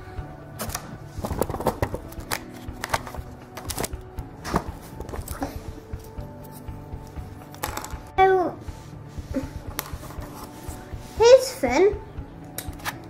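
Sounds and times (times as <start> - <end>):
faint music with held notes: 0.0 - 13.0.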